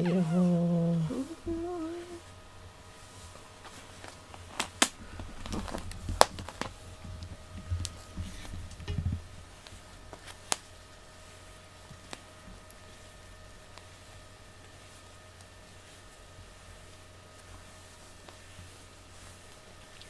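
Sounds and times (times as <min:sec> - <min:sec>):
person humming: 0:00.0 - 0:02.3
hand stroking cat fur: 0:02.0 - 0:04.8, 0:09.4 - 0:20.0.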